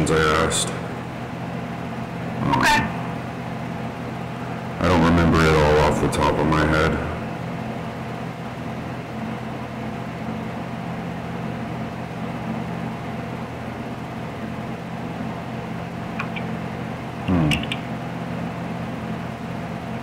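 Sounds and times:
low hum: 0:16.1 - 0:18.0.

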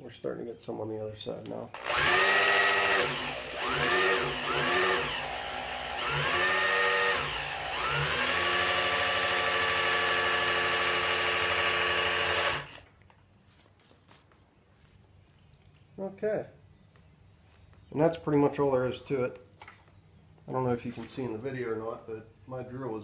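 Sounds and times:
electric drill motor whining: 0:01.8 - 0:12.9.

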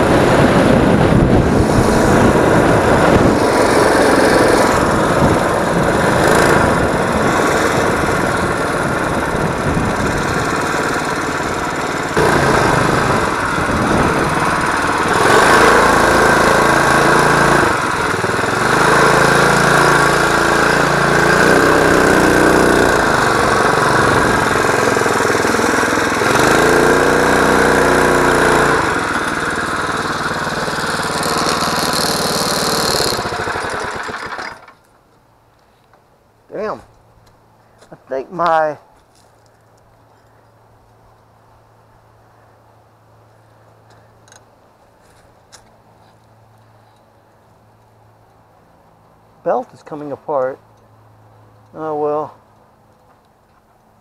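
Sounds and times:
wind rushing over microphone: 0:00.0 - 0:20.0, 0:22.8 - 0:25.5
small atv engine running: 0:00.0 - 0:34.9.

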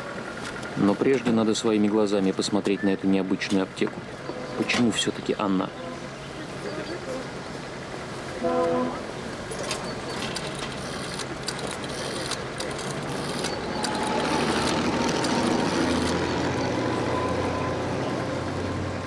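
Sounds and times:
vehicle engine running: 0:00.0 - 0:19.0
brief pitched sound: 0:08.4 - 0:09.1
sharp clicks: 0:09.6 - 0:16.3.

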